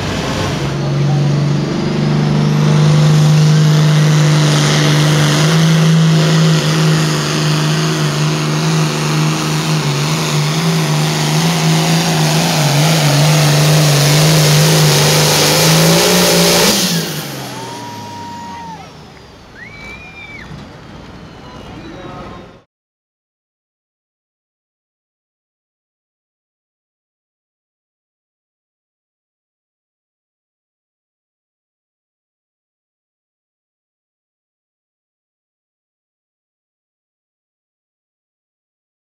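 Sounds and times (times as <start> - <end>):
tractor diesel engine at full throttle: 0.0 - 22.6.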